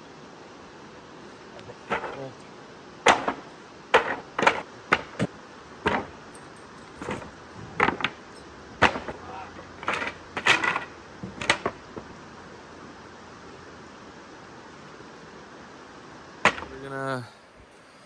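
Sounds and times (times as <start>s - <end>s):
wood and gear clattering: 1.8s - 2.3s, 3.0s - 9.2s, 9.8s - 12.1s
hatchet chopping wood: 3.1s - 5.3s, 8.8s - 9.2s, 16.5s - 16.7s.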